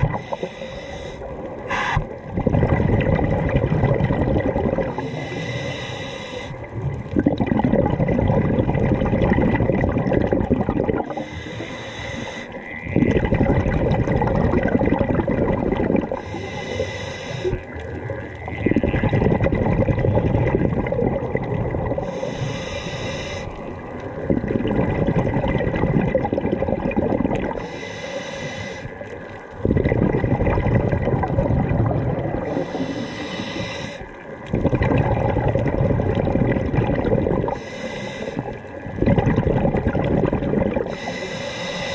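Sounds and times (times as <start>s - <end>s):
bubbling exhalations underwater: 0.0s - 0.4s, 1.6s - 5.2s, 6.6s - 11.4s, 12.5s - 16.4s, 17.4s - 22.3s, 23.5s - 27.6s, 29.6s - 33.0s, 34.4s - 37.6s, 38.4s - 41.2s
hissing regulator inhalations: 0.0s - 2.2s, 4.9s - 6.7s, 11.1s - 12.6s, 16.1s - 17.8s, 22.0s - 23.6s, 27.5s - 29.1s, 32.4s - 34.2s, 37.4s - 38.8s, 40.8s - 41.9s.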